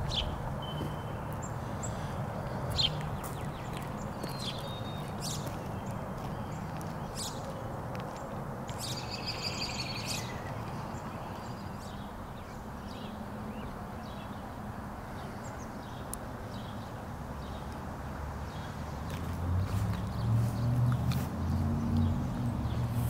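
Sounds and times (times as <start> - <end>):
small birds chirping: 0.0 - 14.5
bird song phrase: 8.8 - 14.4.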